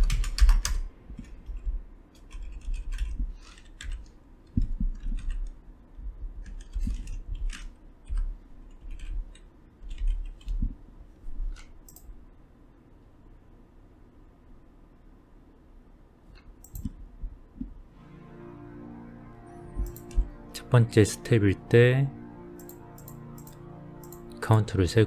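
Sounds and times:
typing on a computer keyboard: 0.0 - 5.6, 6.4 - 10.7, 16.6 - 17.0.

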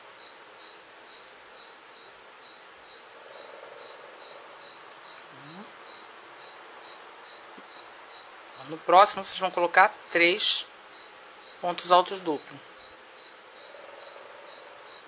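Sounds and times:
cricket chirping: 0.0 - 15.0.

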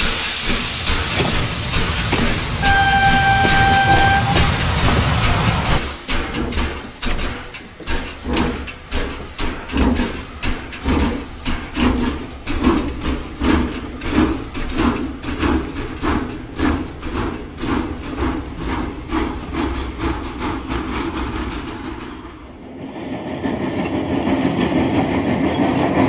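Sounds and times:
toy train chugging: 0.0 - 5.8
toy steam train hiss: 0.0 - 21.8.

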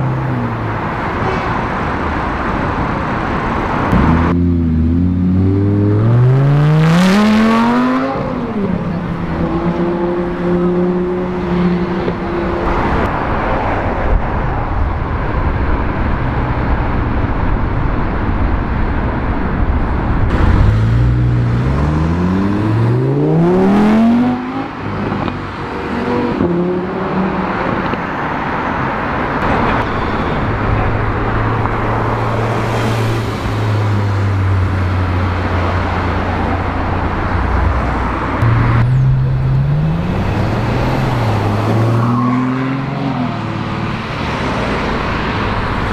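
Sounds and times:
traffic noise: 0.0 - 45.9
sports car engines revving: 3.3 - 13.4, 20.2 - 29.7, 30.6 - 45.9.

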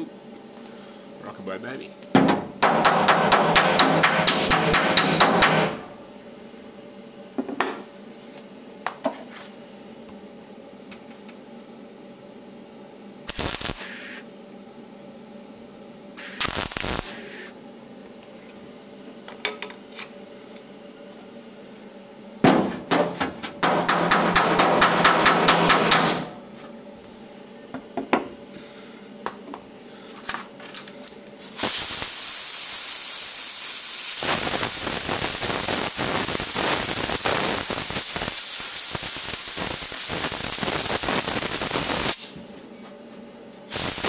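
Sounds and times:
crackling buzz of tack welds: 2.6 - 6.1, 13.2 - 14.3, 16.2 - 18.2, 22.8 - 26.4, 31.1 - 42.4, 43.7 - 44.0.

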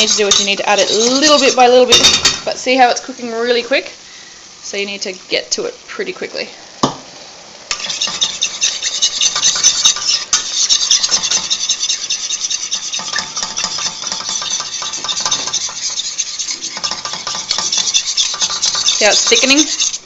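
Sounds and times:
spoon scraping a saucepan: 0.0 - 2.5, 7.7 - 20.0
sauce sizzling: 0.0 - 20.0.

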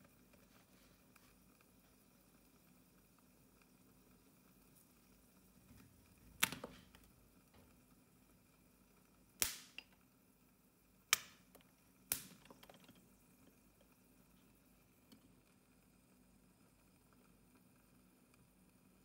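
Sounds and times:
kernels heating in oil: 0.0 - 19.0
popcorn popping: 2.3 - 10.2, 11.0 - 15.6.

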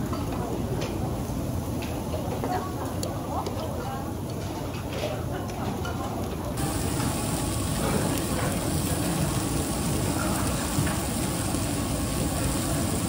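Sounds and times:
meat sizzling on a griddle: 6.6 - 13.0.

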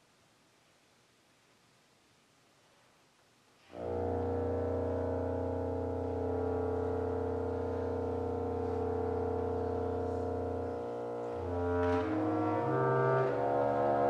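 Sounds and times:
bass clarinet and bassoon low note: 3.6 - 14.0.

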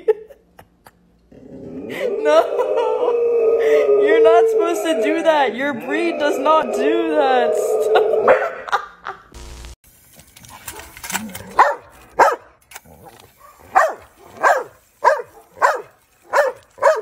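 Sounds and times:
dog barking sharply: 11.6 - 12.5, 13.7 - 17.0.

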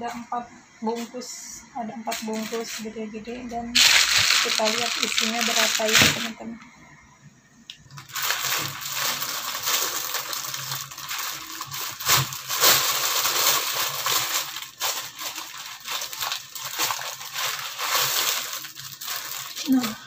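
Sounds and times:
plastic bag crinkling: 2.2 - 2.8, 3.8 - 6.4, 7.9 - 20.0.

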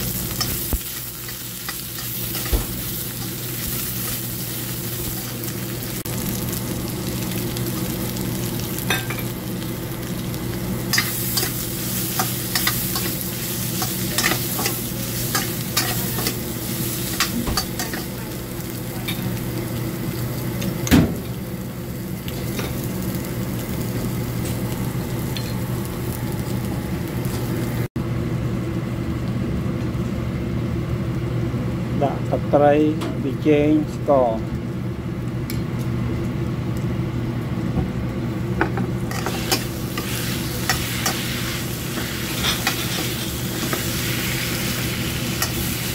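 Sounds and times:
food sizzling in a wok: 0.0 - 27.9, 38.3 - 45.9.

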